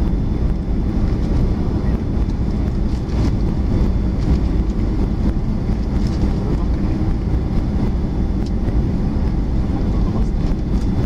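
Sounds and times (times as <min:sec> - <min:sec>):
aircraft cabin rumble: 0:00.0 - 0:11.0.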